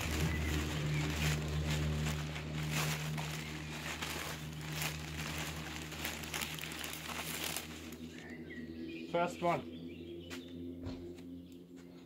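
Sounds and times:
newspaper crinkling and rustling: 0.0s - 8.3s.

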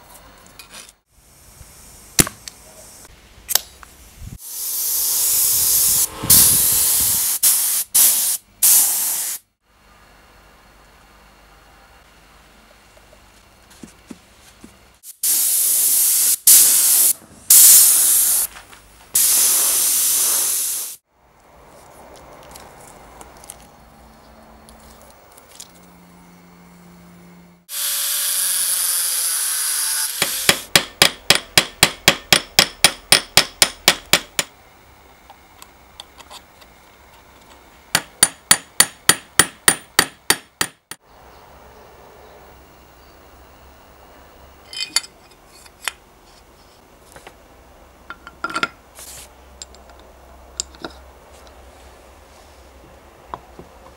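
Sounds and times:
loud hissing bursts: 4.0s - 9.5s, 15.0s - 18.5s, 19.2s - 21.0s
power tool running: 27.7s - 30.6s
sharp tapping on metal: 38.0s - 41.0s.

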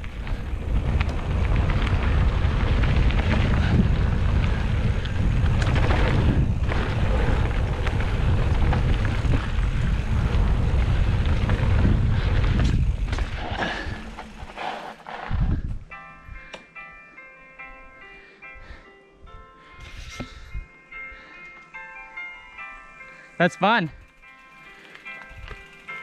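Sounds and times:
wind buffeting microphone: 0.0s - 14.6s, 15.2s - 16.4s
bike rattling over bumps: 0.0s - 15.9s, 24.0s - 26.0s
low rumble: 0.0s - 15.9s.

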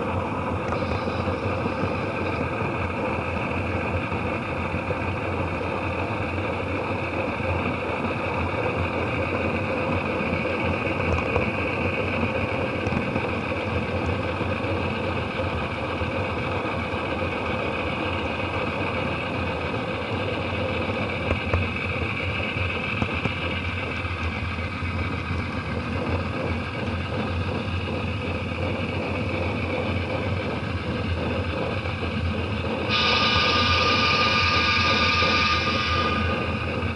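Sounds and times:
model locomotive motor hum: 0.0s - 36.9s
model train wheels on rails: 0.0s - 36.9s.

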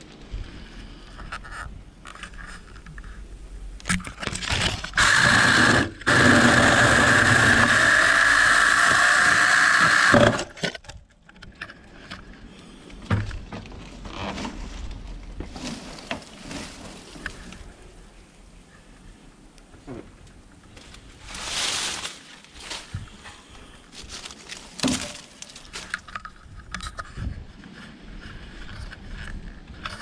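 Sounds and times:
vines and twigs crackling: 0.0s - 9.2s, 10.5s - 19.6s, 20.2s - 30.0s
electric chainsaw whining: 4.9s - 10.6s.

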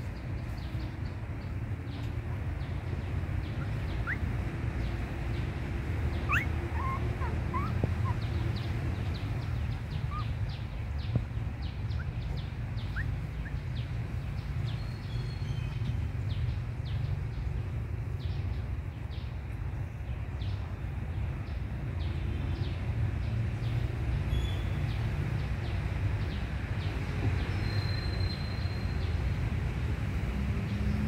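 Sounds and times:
low background rumble: 0.0s - 19.3s
faint rising squeaks: 6.1s - 10.3s.

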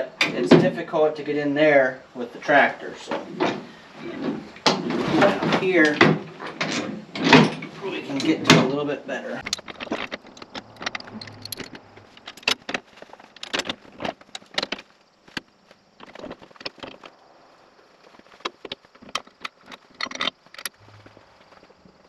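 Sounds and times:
metallic clanks and rattles: 3.1s - 8.8s, 9.4s - 17.1s.

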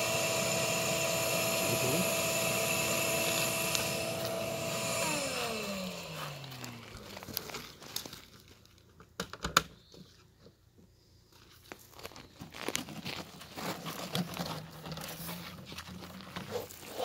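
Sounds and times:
small clicks and rustles of handling: 6.2s - 16.9s.

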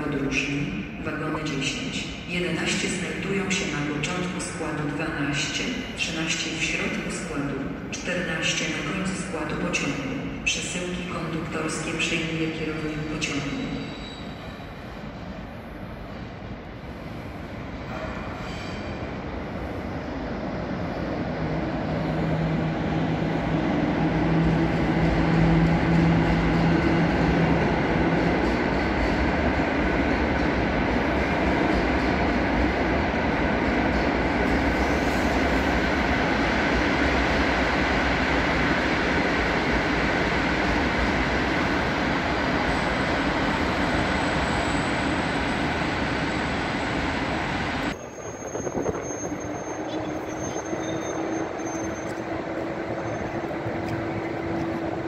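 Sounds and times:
train wheels rumbling on rails: 12.9s - 55.0s.

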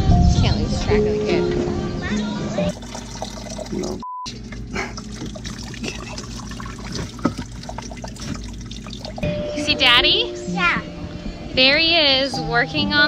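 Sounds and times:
low steady hum: 0.5s - 13.0s
water trickling: 2.7s - 9.8s.

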